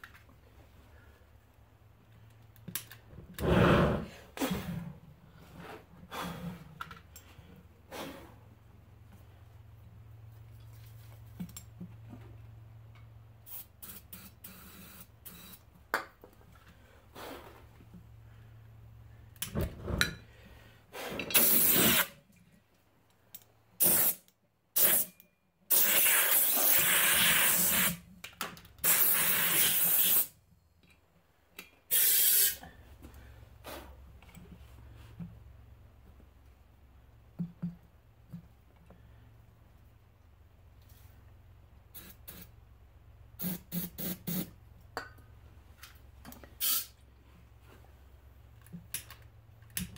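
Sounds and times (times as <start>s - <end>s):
pressurised gas hissing: 3.4s - 4.8s, 20.9s - 22.1s, 25.7s - 28.0s, 28.8s - 30.3s, 31.9s - 32.6s.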